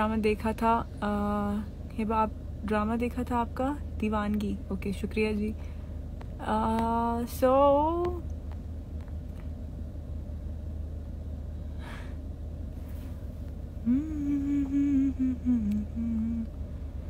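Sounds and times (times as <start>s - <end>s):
low rumble inside car: 0.0s - 17.0s
woman humming: 13.8s - 16.6s.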